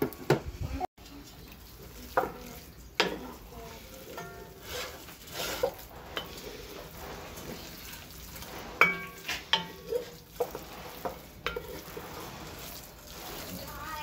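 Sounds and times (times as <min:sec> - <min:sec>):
faint steady sizzle: 0:00.0 - 0:14.0
metal utensil stirring in pot: 0:01.2 - 0:14.0
utensil clinking against pot: 0:04.0 - 0:14.0.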